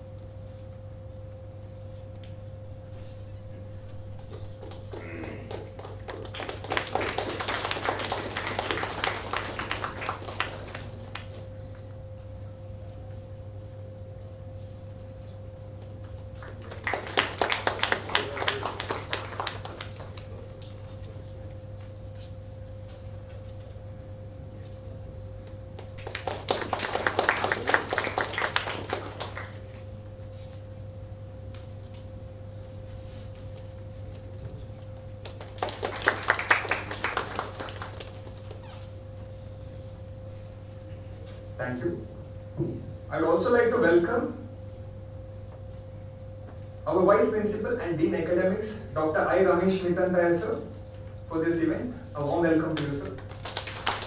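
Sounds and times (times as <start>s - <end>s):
steady low hum: 0.0s - 54.0s
audience applause: 4.6s - 11.4s, 16.4s - 20.6s, 25.9s - 29.8s, 35.2s - 38.6s, 53.1s - 54.0s.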